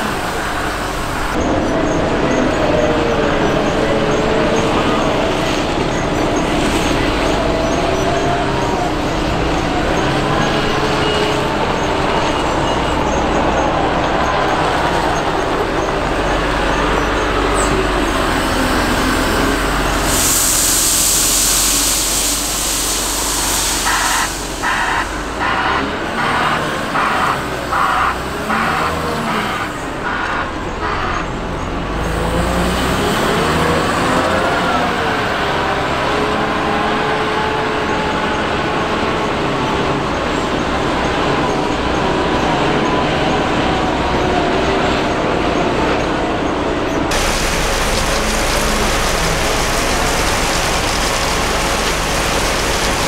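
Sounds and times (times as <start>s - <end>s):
wheel loader diesel engine: 0.0s - 53.0s
loud rushing hiss: 18.4s - 26.3s, 47.1s - 53.0s
reversing alarm beeping: 23.7s - 31.2s.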